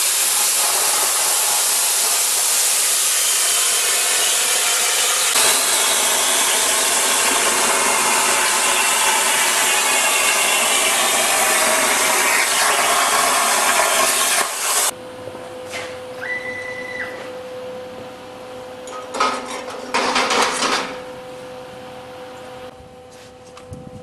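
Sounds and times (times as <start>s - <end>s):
plasma torch cutting steel: 0.0s - 14.9s.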